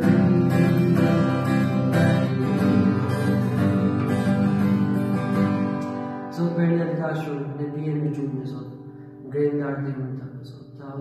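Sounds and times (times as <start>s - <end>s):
acoustic guitar strumming: 0.0s - 10.0s.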